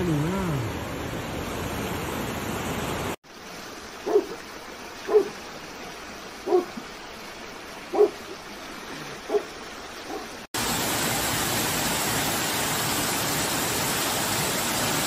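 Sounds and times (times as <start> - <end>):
floodwater rushing: 0.0 - 15.0
heavy rain and running water: 0.0 - 15.0
dog barking: 4.0 - 4.4, 5.1 - 5.4, 6.4 - 6.7, 7.9 - 8.2, 9.3 - 9.5, 10.1 - 10.4.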